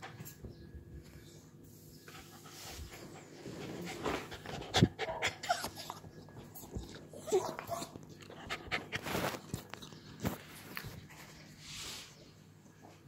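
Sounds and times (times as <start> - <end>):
dog panting: 2.1 - 6.9, 8.2 - 9.2
dog whimpering: 5.0 - 6.1, 7.1 - 8.0.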